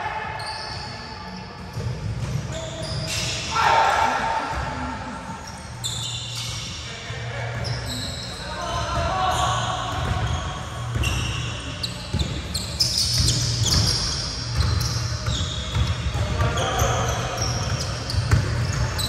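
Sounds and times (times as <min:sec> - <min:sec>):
sneakers squeaking on wood: 0:00.2 - 0:03.5, 0:05.4 - 0:06.8, 0:07.6 - 0:19.0.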